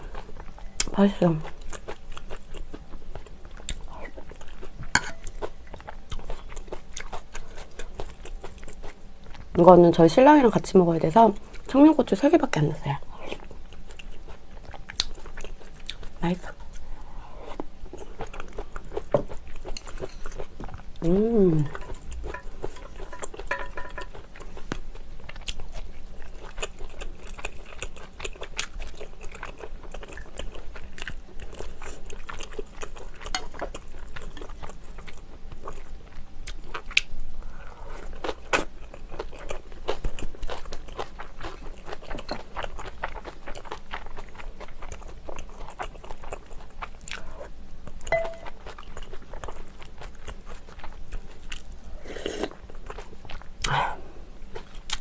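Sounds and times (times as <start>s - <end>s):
chopsticks tapping dishes: 5.0s - 5.3s, 21.7s - 24.2s, 48.1s - 48.5s
biting and chewing: 13.2s - 16.9s, 17.5s - 21.0s, 21.6s - 37.2s, 38.0s - 53.7s.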